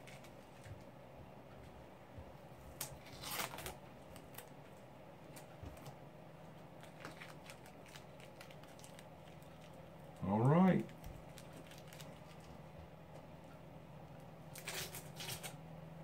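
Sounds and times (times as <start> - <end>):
tape crinkling and tearing: 0.0 - 0.7, 2.7 - 4.6, 6.8 - 10.2, 10.8 - 12.6, 14.5 - 15.6.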